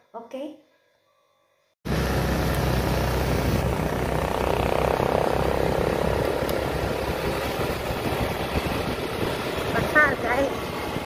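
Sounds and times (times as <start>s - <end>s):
motorbike running: 1.9s - 11.0s
wind rumble on microphone: 2.7s - 11.0s.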